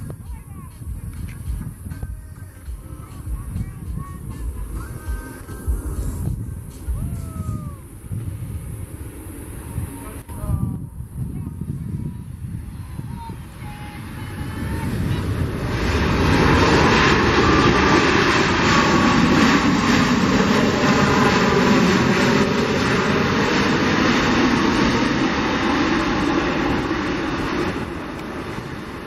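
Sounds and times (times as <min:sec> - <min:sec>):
jet engines roaring: 0:00.0 - 0:29.0.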